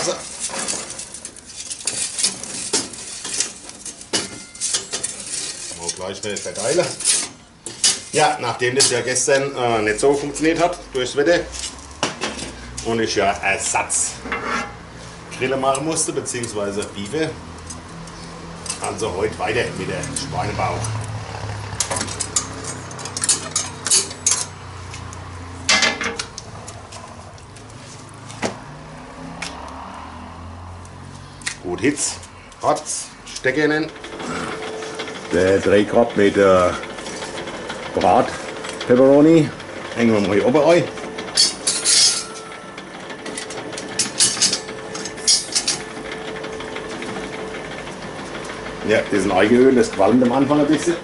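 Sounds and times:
metal clinks and clanks: 0:00.0 - 0:08.2, 0:21.8 - 0:24.7, 0:32.0 - 0:51.0
rotisserie motor humming: 0:00.0 - 0:51.0.

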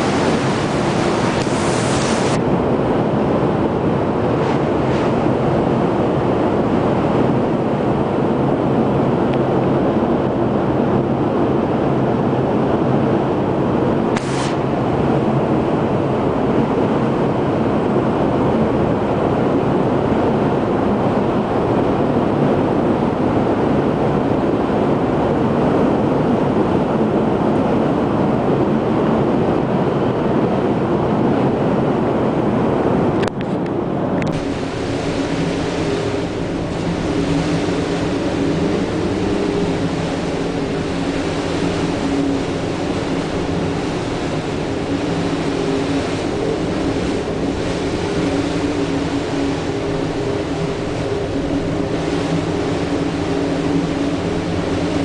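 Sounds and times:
wind and rain rushing: 0:00.0 - 0:55.0
wind buffeting microphone: 0:00.0 - 0:55.0
sharp hiss: 0:14.2 - 0:14.6.

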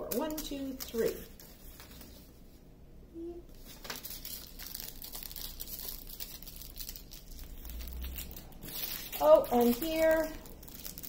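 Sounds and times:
plastic bags crinkling: 0:03.5 - 0:11.0.

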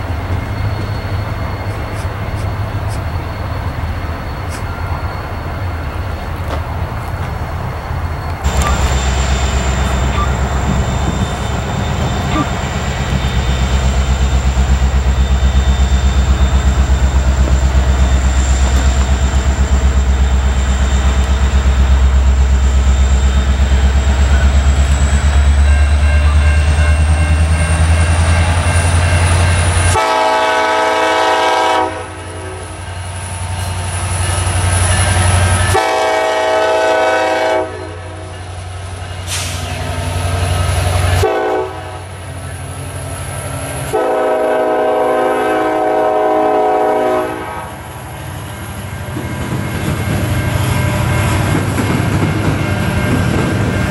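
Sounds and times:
diesel locomotive engine rumble: 0:00.0 - 0:53.9
train air horn chord: 0:29.9 - 0:32.7, 0:35.7 - 0:38.3, 0:41.2 - 0:42.1, 0:43.9 - 0:47.8.

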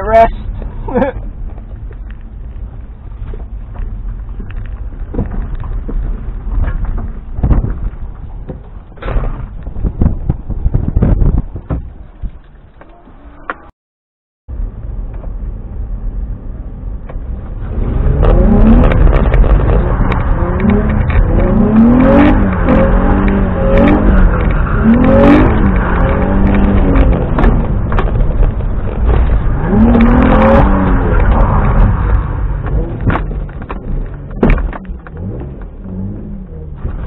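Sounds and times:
car engine revving: 0:17.1 - 0:37.0.

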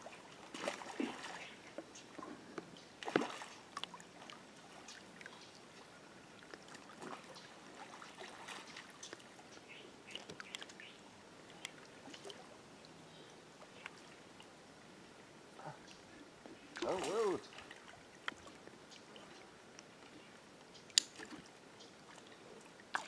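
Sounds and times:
quiet river water: 0:00.0 - 0:23.0.

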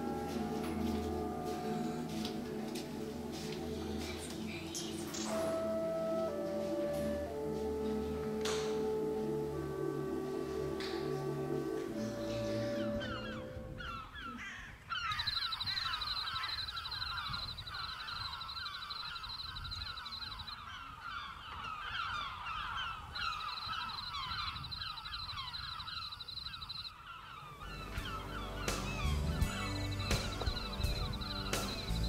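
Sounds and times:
small birds chirping: 0:03.2 - 0:05.6, 0:11.9 - 0:32.0
cicadas buzzing: 0:15.0 - 0:20.6, 0:23.1 - 0:32.0.

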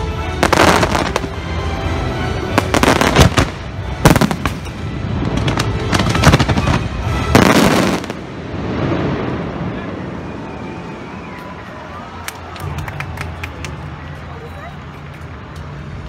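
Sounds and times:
fireworks bangs and crackles: 0:00.3 - 0:01.7, 0:02.5 - 0:11.6.

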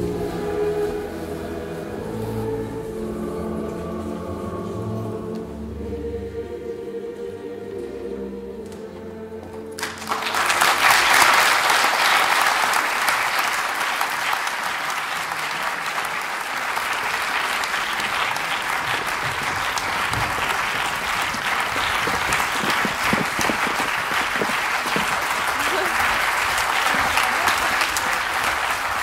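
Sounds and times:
closing music: 0:00.0 - 0:12.5, 0:16.1 - 0:29.0
audience applauding: 0:09.8 - 0:29.0.

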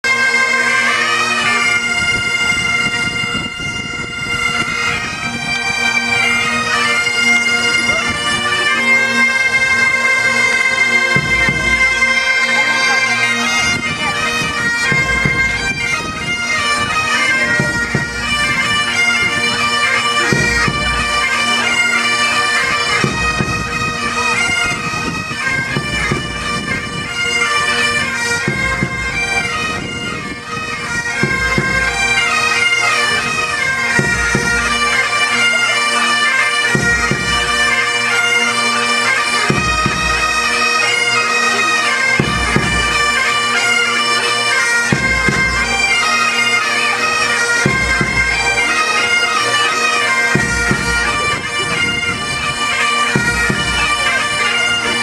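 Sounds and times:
bagpipes playing a tune: 0:00.0 - 0:55.0
snare drums beating: 0:11.2 - 0:12.0.

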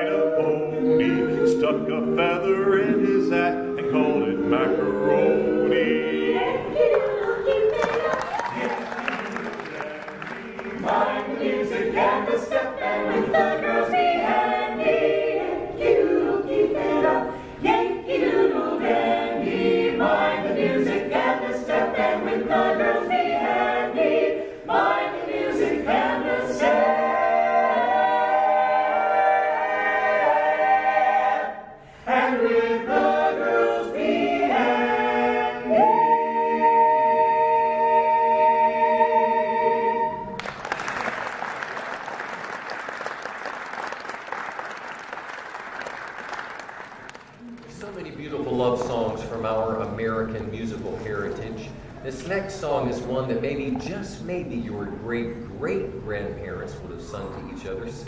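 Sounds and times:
a cappella ensemble singing: 0:00.0 - 0:40.5.

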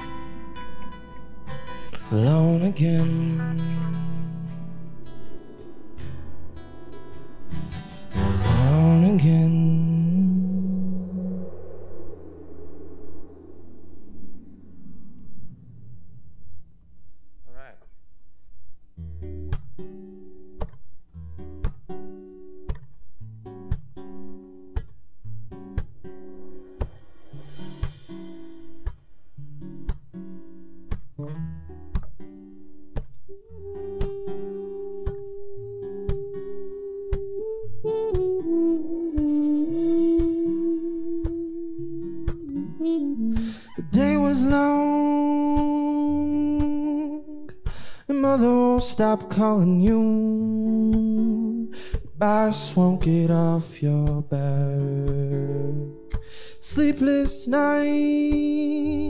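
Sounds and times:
acoustic guitar chords: 0:00.0 - 0:11.8, 0:18.2 - 0:59.0
wordless sung note: 0:00.0 - 0:16.4, 0:33.3 - 0:47.4.

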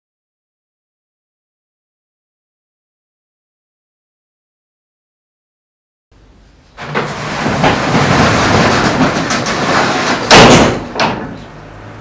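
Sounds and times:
loud metal clang: 0:06.8 - 0:11.5
roller shutter door rattling: 0:06.8 - 0:12.0.

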